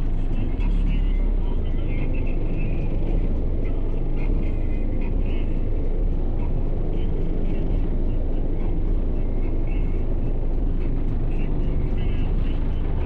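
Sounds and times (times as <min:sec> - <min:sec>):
deep subwoofer bass: 0:00.0 - 0:13.0.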